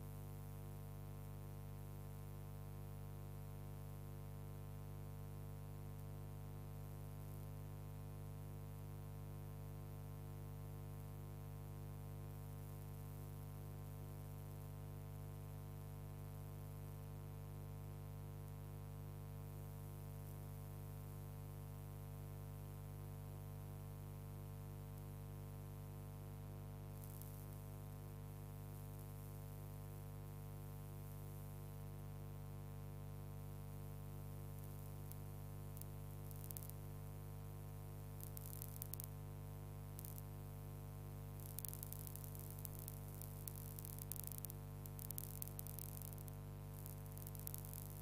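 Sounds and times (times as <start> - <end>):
crackles and clicks: 27.0 - 27.5, 34.6 - 37.1, 38.1 - 39.2, 39.9 - 40.4, 41.2 - 48.0
electrical hum: 34.6 - 48.0.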